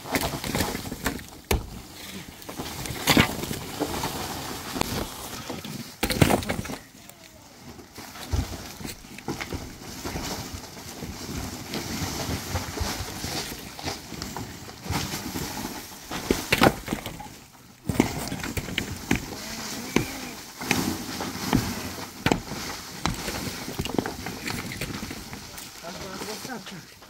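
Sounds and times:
earth and rubble falling: 0:00.0 - 0:27.0
wooden pole knocking: 0:21.5 - 0:24.2.

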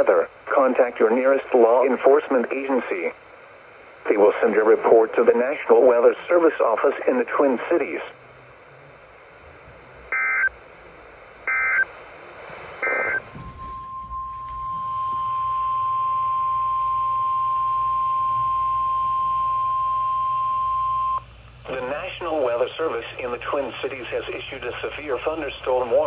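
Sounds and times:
data bursts from radio speaker: 0:10.1 - 0:10.5, 0:11.5 - 0:11.9, 0:12.8 - 0:14.1
single-pitch warning alarm tone: 0:10.1 - 0:10.5, 0:11.5 - 0:11.9, 0:12.8 - 0:21.2.

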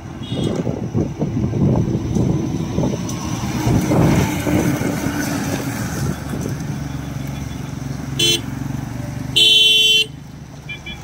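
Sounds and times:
diesel bus engine: 0:00.0 - 0:11.0
other vehicles passing: 0:00.0 - 0:11.0
short vehicle horn toot: 0:00.2 - 0:00.6.

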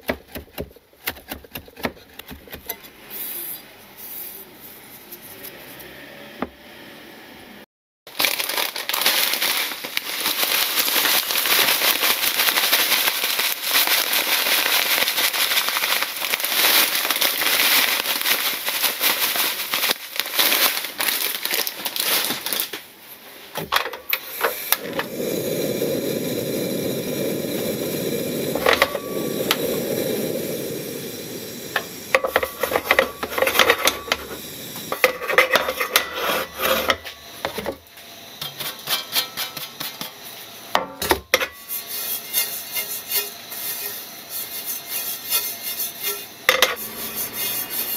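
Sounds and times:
bread crumbs crackling in a pan: 0:08.1 - 0:22.8, 0:41.4 - 0:47.9.

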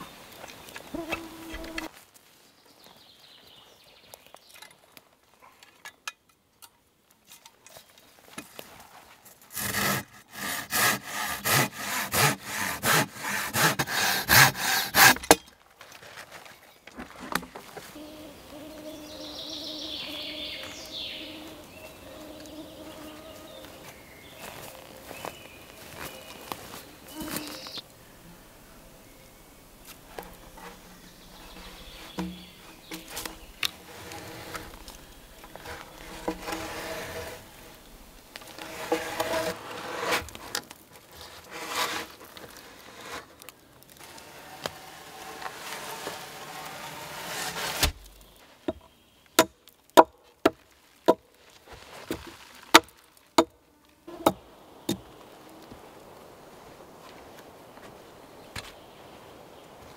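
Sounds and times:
log rustling and scraping in sand: 0:00.0 - 0:05.8, 0:07.2 - 0:49.8, 0:50.6 - 0:59.9
hatchet striking wooden post: 0:49.4 - 0:51.2.

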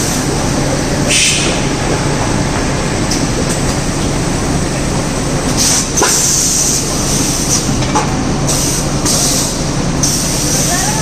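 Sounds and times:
machinery rumble: 0:00.0 - 0:11.0
compressed air hisses: 0:01.1 - 0:01.6, 0:08.5 - 0:10.8.

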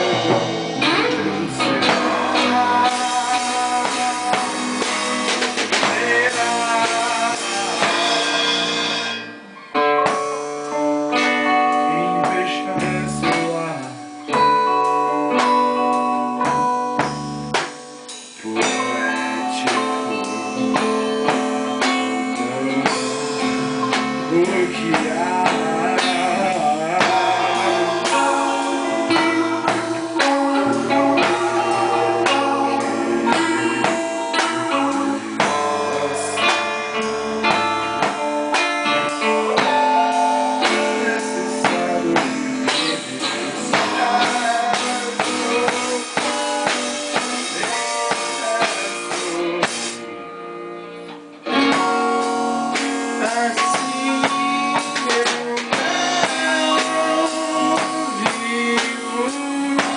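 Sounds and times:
rock band playing: 0:00.0 - 0:59.9.

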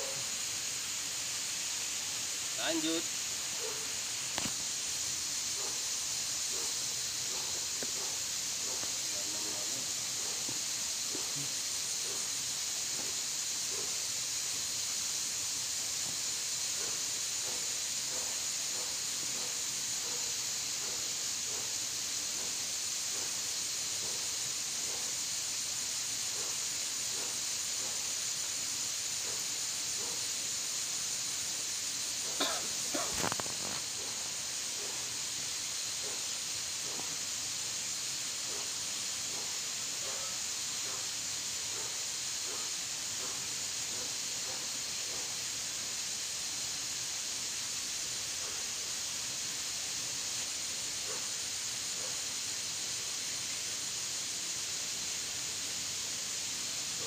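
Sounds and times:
insect chorus hiss: 0:00.0 - 0:57.0
burst of clicks: 0:04.3 - 0:04.8.

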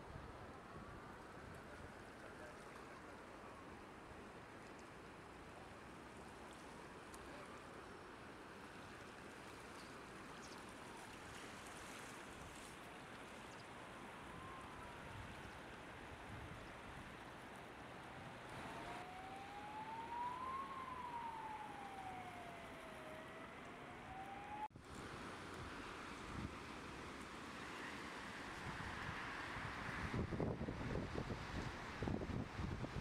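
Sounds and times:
distant siren wailing: 0:13.8 - 0:15.9, 0:17.6 - 0:24.7.

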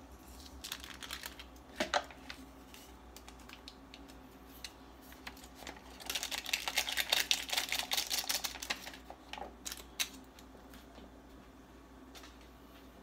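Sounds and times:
plastic packaging crinkling: 0:00.2 - 0:10.5.

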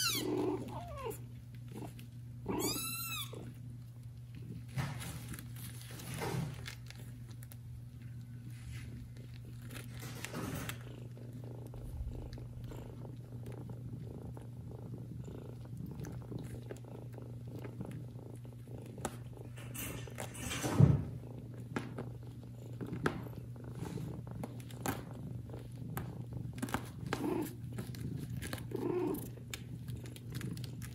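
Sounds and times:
rustling of fur and bedding: 0:00.0 - 0:12.7
cat purring: 0:00.0 - 0:30.9.

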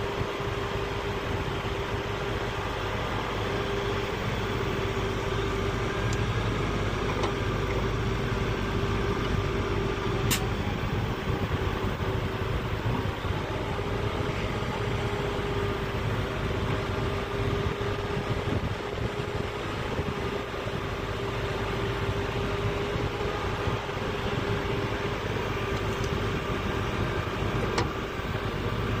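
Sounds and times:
excavator diesel engine running: 0:00.0 - 0:29.0
sharp click: 0:10.3 - 0:10.5.

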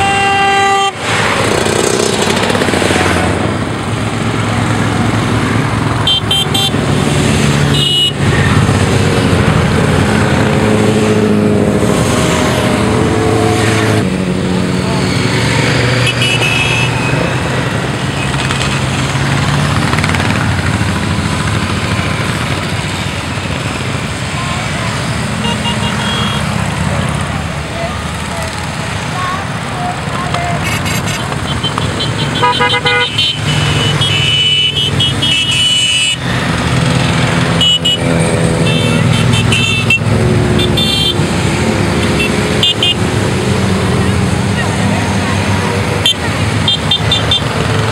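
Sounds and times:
high-pitched horn toots: 0:00.0 - 0:01.1, 0:07.7 - 0:08.2, 0:16.0 - 0:17.3, 0:25.4 - 0:26.5, 0:30.5 - 0:36.2, 0:37.6 - 0:41.2
motorcycles passing: 0:00.0 - 0:47.9.

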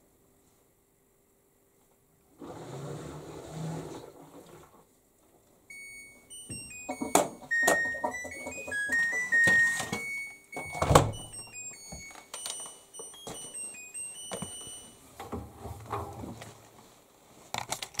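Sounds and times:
washing machine melody: 0:05.7 - 0:16.4.

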